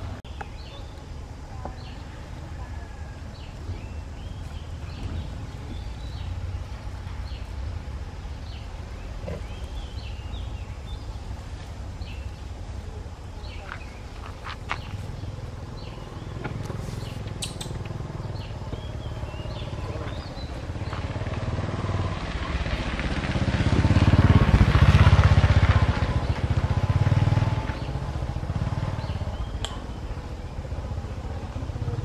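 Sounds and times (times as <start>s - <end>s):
vehicle engine passing by: 14.8s - 32.0s.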